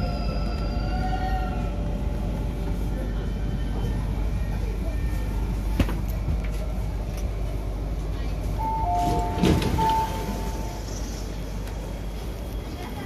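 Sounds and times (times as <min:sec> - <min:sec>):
train running hum: 0:00.0 - 0:13.0
train doors sliding open: 0:08.5 - 0:12.6.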